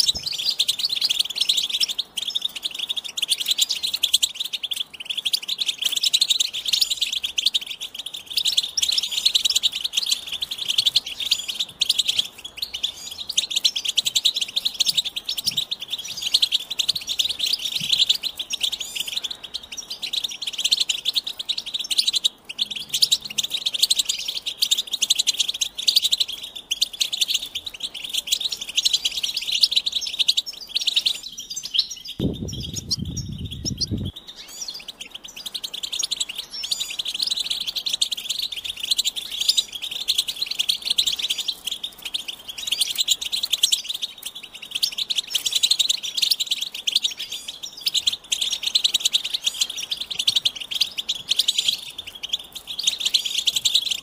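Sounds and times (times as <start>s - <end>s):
finches twittering song: 0.0s - 54.0s
low rumble: 32.2s - 34.1s.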